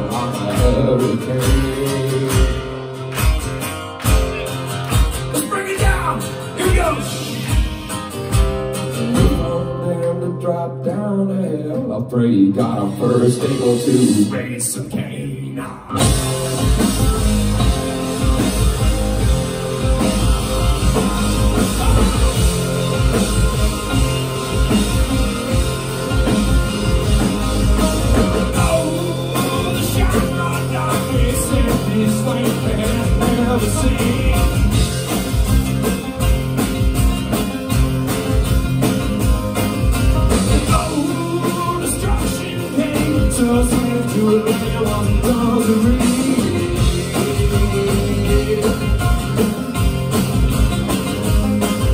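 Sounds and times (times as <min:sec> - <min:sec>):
man singing: 0:00.0 - 0:02.9, 0:05.3 - 0:07.5, 0:09.0 - 0:16.2, 0:21.5 - 0:22.5, 0:28.0 - 0:35.1, 0:40.4 - 0:49.5
live band playing metal bluegrass: 0:00.0 - 0:51.9.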